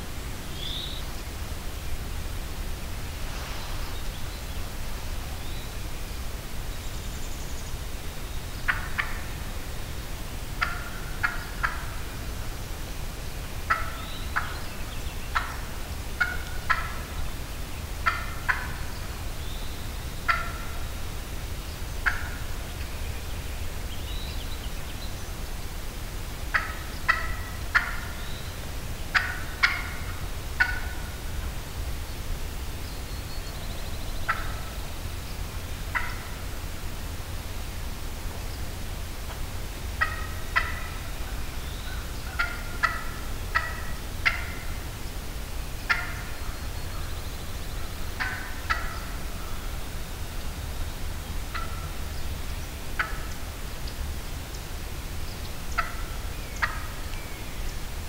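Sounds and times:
steady low rumble: 1.2s - 7.2s
turkey clucking: 8.7s - 9.2s, 10.6s - 12.0s, 13.7s - 14.6s, 15.3s - 17.1s, 18.0s - 18.8s, 20.3s - 20.6s, 26.5s - 28.2s, 29.1s - 31.1s, 34.3s - 34.7s, 35.9s - 36.4s, 40.0s - 41.2s, 41.9s - 44.7s, 45.9s - 46.3s, 48.2s - 49.6s, 51.5s - 51.9s, 53.0s - 53.4s, 55.7s - 57.0s.

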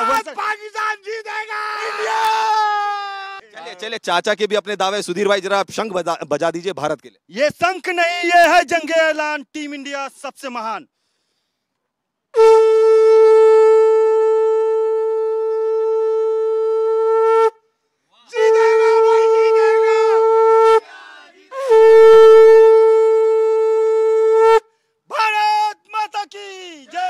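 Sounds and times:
conch shell blasts: 12.4s - 17.6s, 18.5s - 20.8s, 21.5s - 24.7s.

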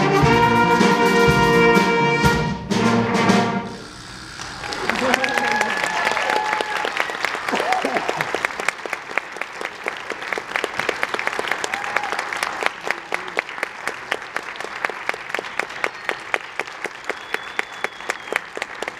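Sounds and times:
audience applauding: 3.7s - 18.9s
close sharp claps: 4.4s - 18.9s.

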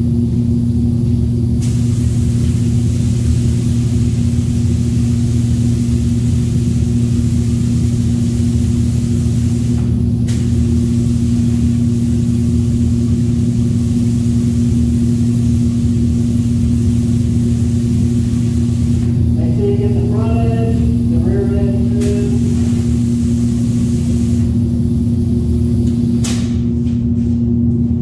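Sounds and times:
exhaust fan humming: 0.0s - 28.0s
spray gun hissing: 1.6s - 26.2s.

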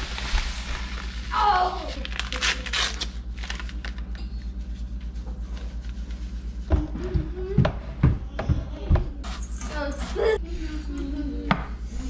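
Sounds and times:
powder pouring into metal bowl: 0.0s - 2.1s
foil packet crinkling: 0.0s - 4.2s
low pulsing hum: 0.0s - 12.0s.

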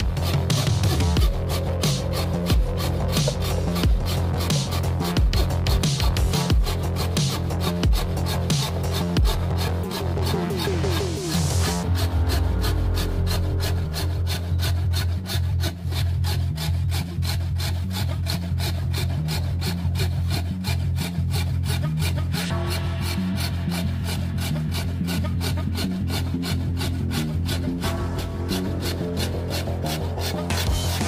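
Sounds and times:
scroll saw cutting wood: 0.0s - 31.0s.

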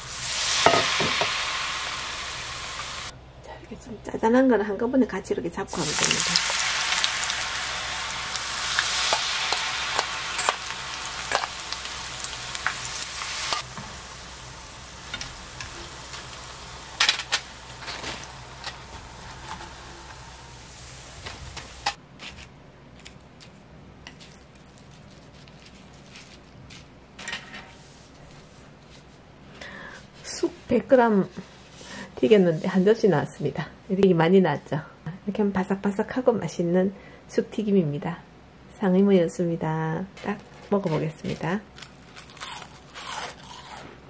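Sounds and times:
deep-frying sizzle: 0.0s - 3.1s, 5.7s - 22.0s.

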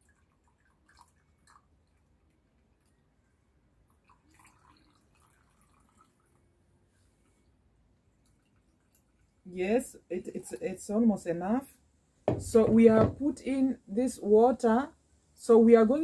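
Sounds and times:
water trickling onto ash: 0.0s - 3.0s, 3.9s - 6.4s
soft water drips: 0.0s - 11.0s.

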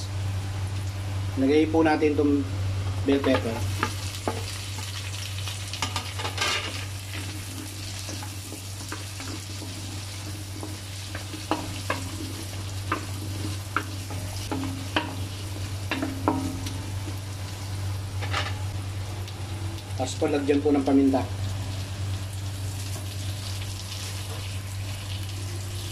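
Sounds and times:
vegetables sizzling in hot oil: 2.8s - 25.9s
wooden spatula scraping pan: 6.2s - 16.9s.

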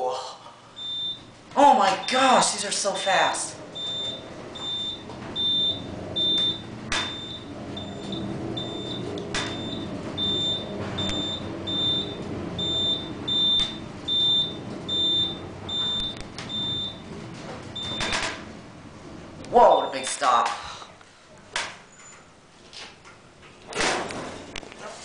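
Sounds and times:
elevator car hum: 0.6s - 20.2s
elevator beeps: 0.7s - 18.6s.

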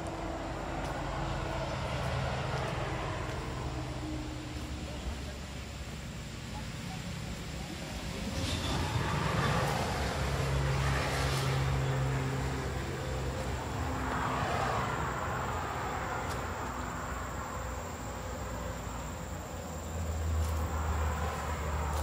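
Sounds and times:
low engine hum: 0.0s - 22.0s
passing vehicle rushing: 7.0s - 22.0s.

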